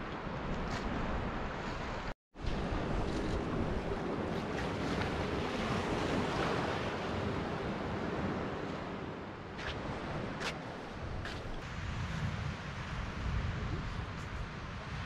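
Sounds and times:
waves washing around pilings: 0:00.0 - 0:15.0
wind on the microphone: 0:00.0 - 0:15.0.

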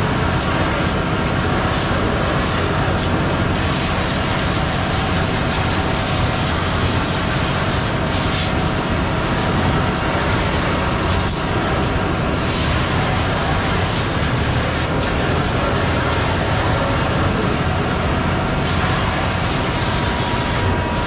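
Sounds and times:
diesel engine running: 0:00.0 - 0:21.0
hose nozzle spraying water: 0:00.3 - 0:20.7.

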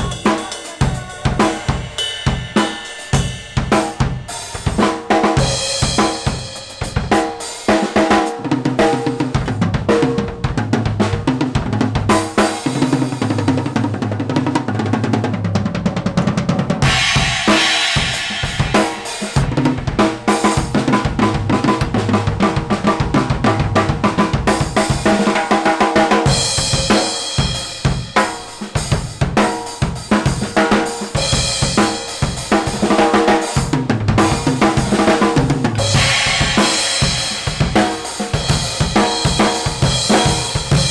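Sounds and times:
crash cymbals: 0:00.0 - 0:04.8, 0:16.8 - 0:20.7, 0:35.8 - 0:40.9
drum kit groove: 0:00.0 - 0:40.9.

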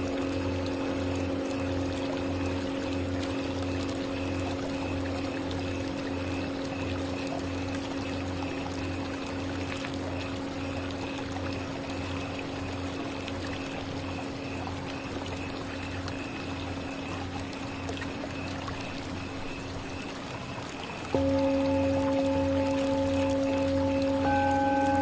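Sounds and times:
singing bowl ringing: 0:00.0 - 0:04.4, 0:21.2 - 0:25.0.

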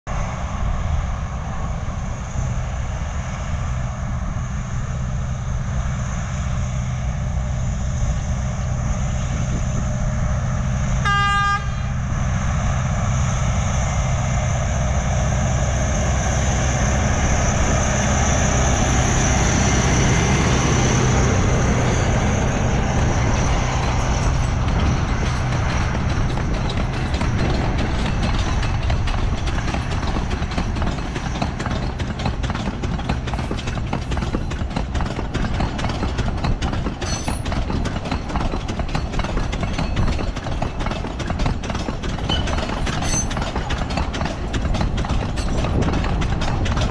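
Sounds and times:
diesel locomotive running: 0:00.1 - 0:46.9
wheel and rail noise: 0:00.1 - 0:46.9
train horn blast: 0:11.0 - 0:12.1.

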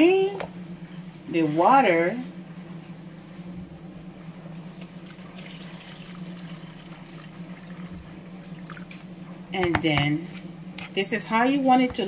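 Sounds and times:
steady low hum: 0:00.0 - 0:12.0
water trickling into a bowl: 0:04.6 - 0:09.1.

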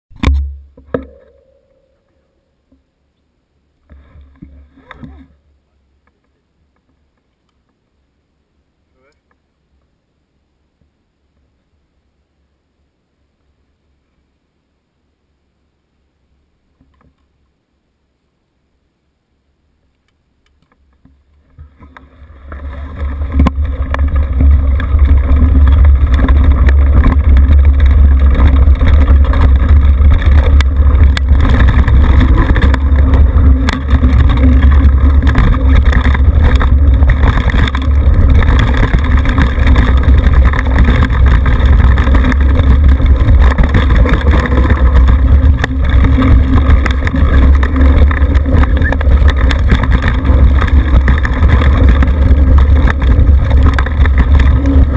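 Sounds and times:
bike knocks and rattles: 0:00.1 - 0:01.8, 0:21.0 - 0:54.9
tyres rolling on dirt: 0:20.7 - 0:54.9
wind rumble on microphone: 0:21.4 - 0:54.9.

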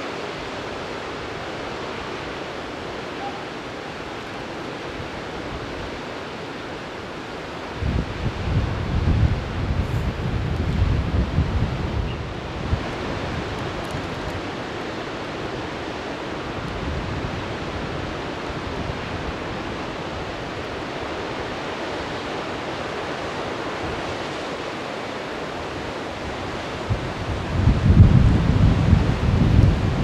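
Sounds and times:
mountain torrent rushing over rocks: 0:00.0 - 0:30.0
wind rumble on microphone: 0:07.2 - 0:24.6, 0:25.4 - 0:30.0.

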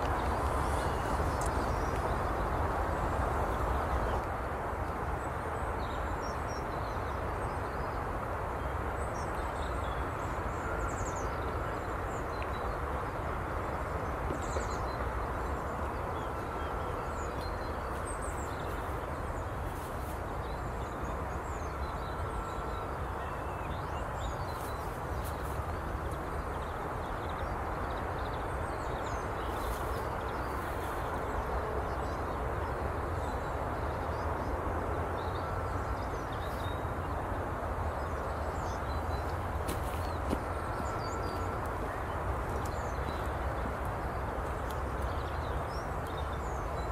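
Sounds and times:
small birds chirping: 0:13.8 - 0:34.6.

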